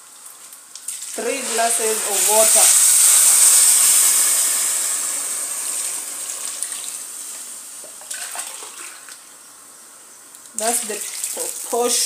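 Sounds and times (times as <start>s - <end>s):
water hissing in hot pot: 0.5s - 9.2s.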